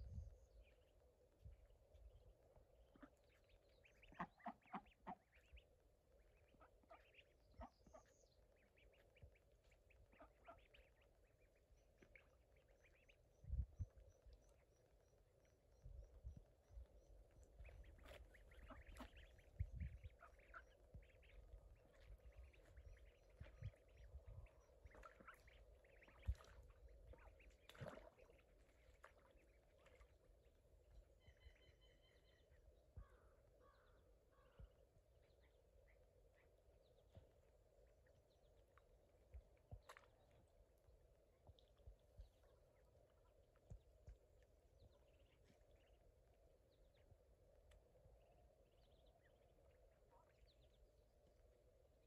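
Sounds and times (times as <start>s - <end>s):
ducks and ducklings calling: 2.9s - 5.6s, 17.6s - 30.1s.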